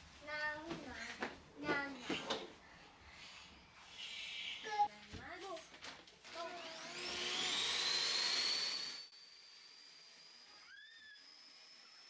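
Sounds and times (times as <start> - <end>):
vacuum cleaner motor whine: 6.4 - 12.0.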